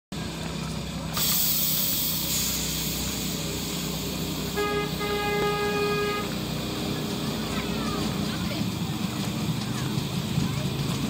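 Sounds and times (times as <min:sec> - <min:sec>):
hiss of escaping steam: 0:01.2 - 0:04.5
steam locomotive whistle: 0:04.5 - 0:06.5.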